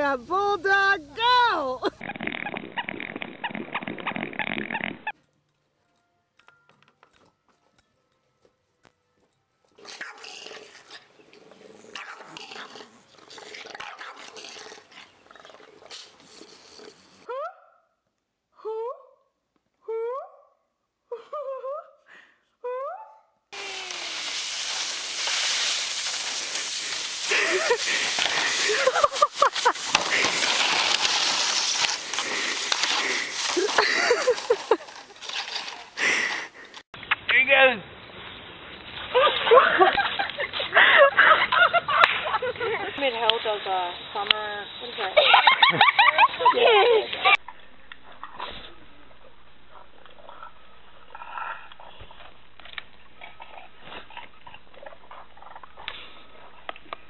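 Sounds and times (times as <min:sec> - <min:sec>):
person's voice: 0:00.0 - 0:02.0
dogs growling: 0:09.8 - 0:17.3, 0:47.6 - 0:57.0
plastic sled scraping on snow: 0:23.6 - 0:36.8
snow crunching and scraping: 0:23.6 - 0:36.8.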